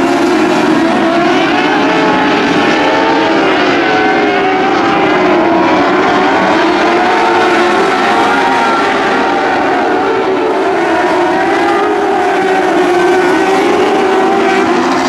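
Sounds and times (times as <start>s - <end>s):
race car engines revving: 0.0s - 15.0s.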